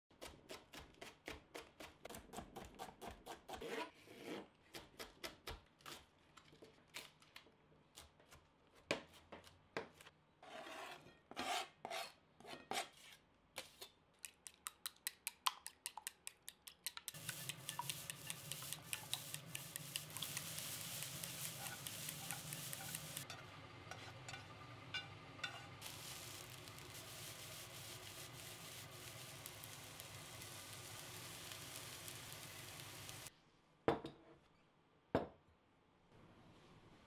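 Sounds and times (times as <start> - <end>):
rice sizzling in a hot pan: 17.1 - 33.3.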